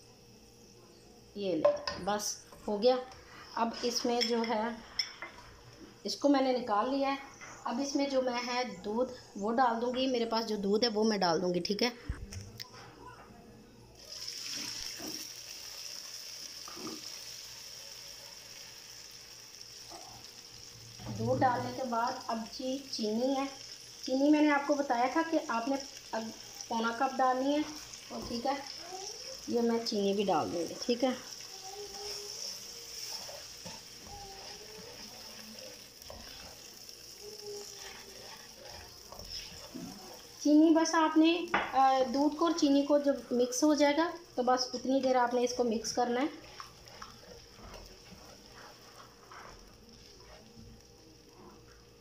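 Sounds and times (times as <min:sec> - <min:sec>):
frying pan sizzling: 0:14.0 - 0:52.0
spatula stirring: 0:19.6 - 0:43.5, 0:44.4 - 0:51.9.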